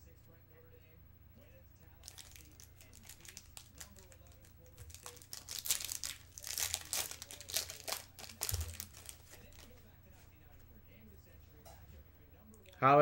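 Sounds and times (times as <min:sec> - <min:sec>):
foil wrapper crinkling and tearing: 0:02.0 - 0:09.8.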